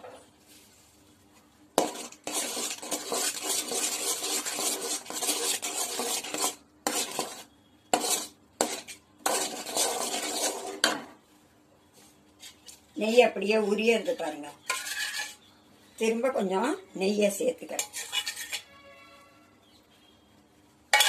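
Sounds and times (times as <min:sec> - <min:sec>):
spoon scraping a pan: 0:01.8 - 0:11.2, 0:13.6 - 0:15.5, 0:17.6 - 0:19.2.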